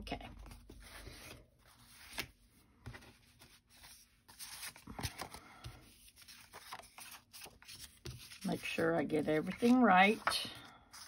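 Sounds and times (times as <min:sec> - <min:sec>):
paper rustling and tapping: 0:09.4 - 0:10.6.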